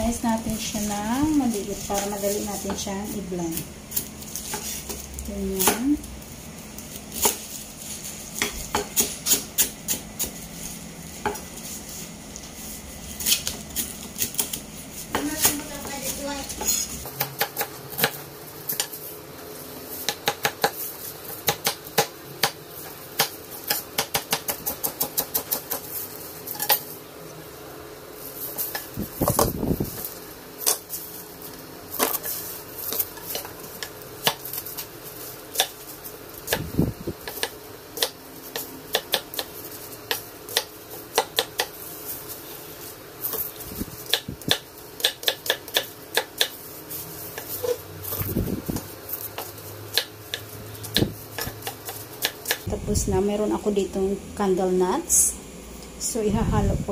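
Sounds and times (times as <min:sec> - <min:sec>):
knife chopping on wooden block: 0:44.1 - 0:46.6.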